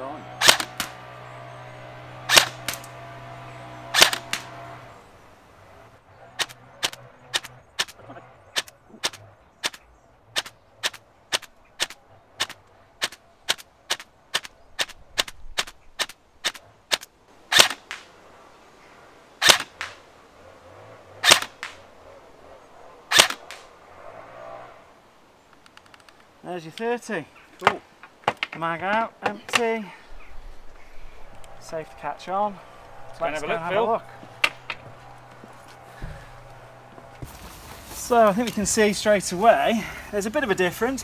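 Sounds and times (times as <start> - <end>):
airsoft rifle shots cracking: 0.4 - 1.0, 2.2 - 2.9, 3.9 - 4.6, 6.4 - 8.0, 8.6 - 18.1, 19.4 - 20.0, 21.2 - 21.8, 23.1 - 23.7.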